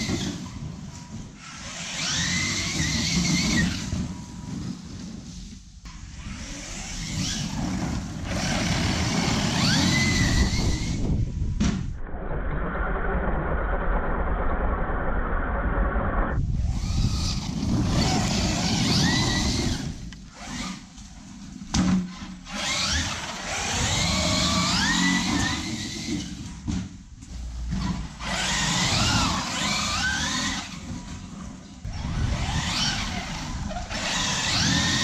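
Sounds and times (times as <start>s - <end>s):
rc truck motor whine: 0.0s - 5.2s, 5.9s - 11.2s, 12.5s - 21.4s, 22.1s - 26.7s, 27.4s - 35.0s
tyres rumbling on ground: 0.0s - 11.8s.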